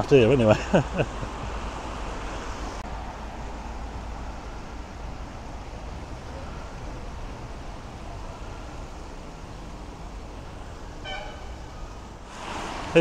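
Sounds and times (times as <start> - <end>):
traffic on wet roads: 0.0 - 13.0.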